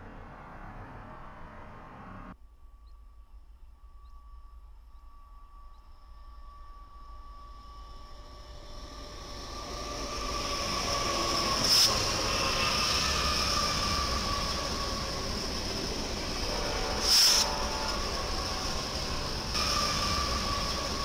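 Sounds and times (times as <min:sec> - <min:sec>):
diesel locomotives hauling train: 0:00.0 - 0:21.0
wheels squealing on track: 0:07.8 - 0:21.0.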